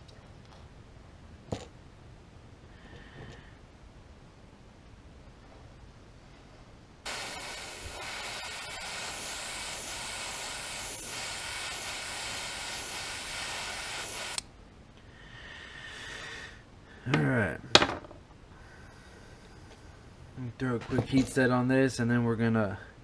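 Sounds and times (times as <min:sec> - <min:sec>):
airbrush spraying hiss: 0:07.1 - 0:14.4.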